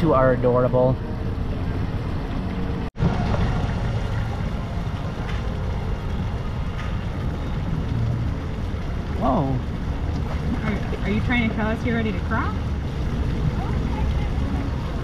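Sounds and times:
low rumbling noise: 0.0 - 15.0.

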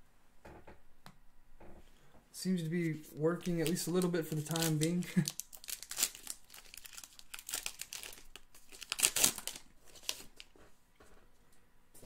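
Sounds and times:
wrapper tearing and crinkling: 3.2 - 10.5.

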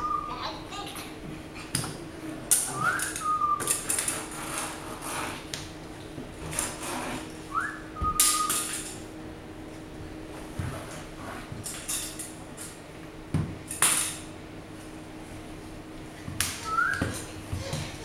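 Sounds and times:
whistled call: 2.8 - 3.7, 7.5 - 8.7, 16.6 - 17.0.

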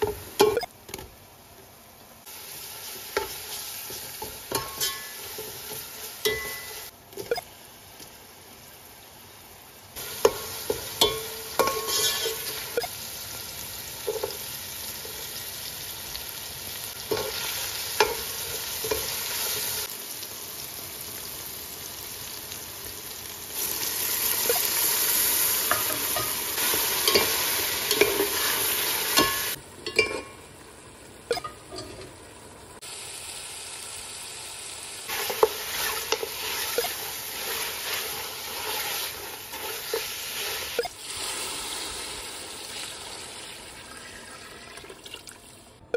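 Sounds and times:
food sizzling in oil: 2.2 - 45.7
metal spoon scraping pot: 11.0 - 12.6.

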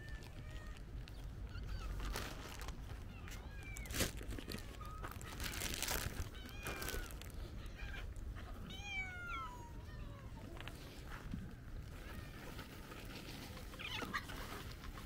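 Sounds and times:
crunching and rustling: 0.0 - 8.5, 10.5 - 15.0
cats meowing faintly: 0.0 - 15.0.

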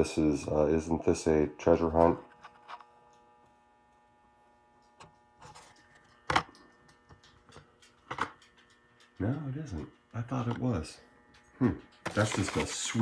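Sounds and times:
faint electrical hum: 0.0 - 13.0
plastic rustles and clicks: 11.9 - 13.0.

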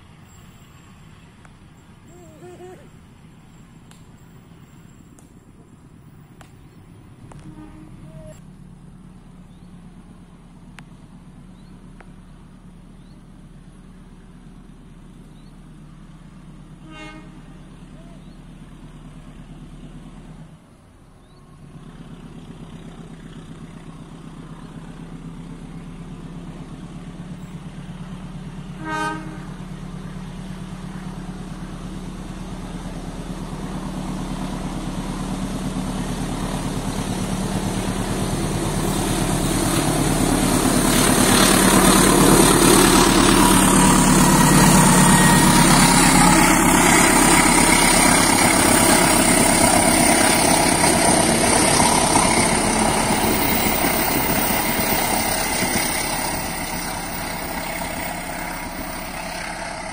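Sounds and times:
locomotive engine drone: 0.0 - 59.9
train horn toots: 7.3 - 8.4, 16.8 - 18.1, 28.7 - 29.7, 43.4 - 47.2.

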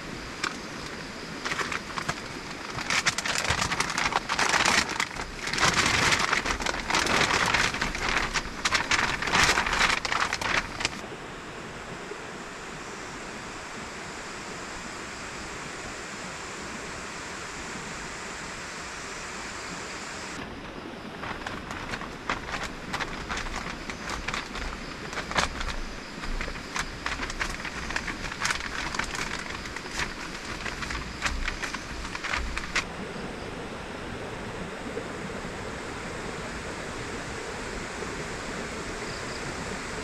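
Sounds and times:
loud crackling and rustling: 0.0 - 11.0, 20.4 - 32.9
river water rushing: 0.0 - 34.6.

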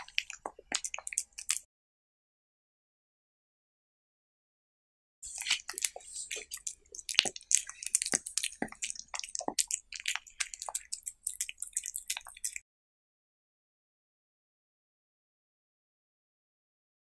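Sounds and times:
cat licking and chewing: 0.0 - 1.7, 5.2 - 12.6.

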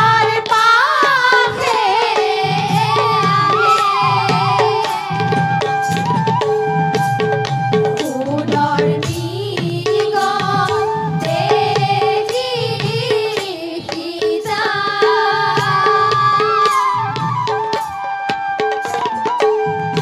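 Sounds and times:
women singing: 0.0 - 5.5, 8.0 - 17.2
bamboo flute melody: 2.8 - 8.9, 10.4 - 12.2, 15.5 - 20.0.

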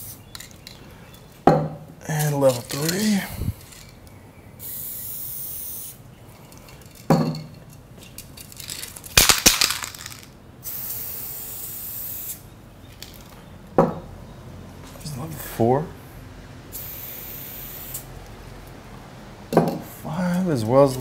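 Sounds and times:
spray can rattling and clicking: 0.0 - 0.8, 2.2 - 4.0, 7.7 - 12.4
aerosol spray can hissing: 4.6 - 6.0, 10.6 - 12.4, 16.8 - 18.1.

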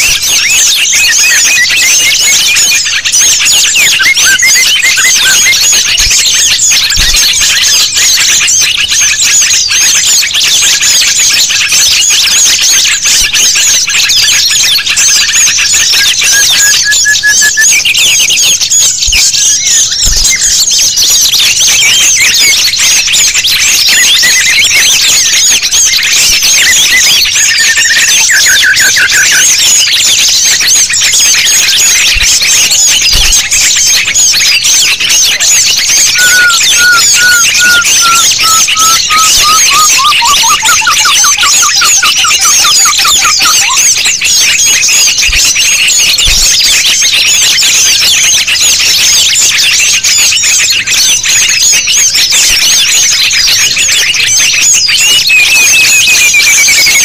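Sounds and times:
songbirds chirping and twittering: 0.0 - 57.0
bird trill descending: 36.0 - 44.1.

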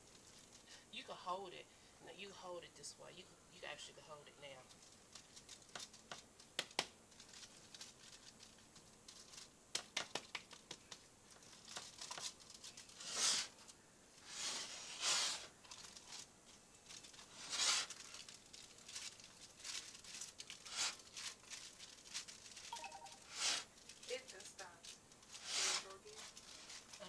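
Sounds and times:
aluminum foil crinkling: 0.0 - 0.8, 4.5 - 27.0
hands patting meatloaf: 9.7 - 11.0.

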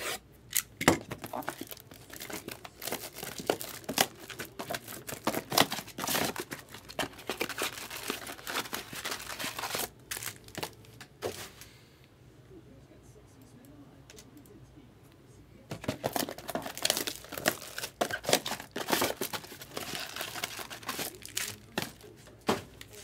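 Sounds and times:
cellophane tearing and crumpling: 1.1 - 10.8, 16.0 - 23.0.

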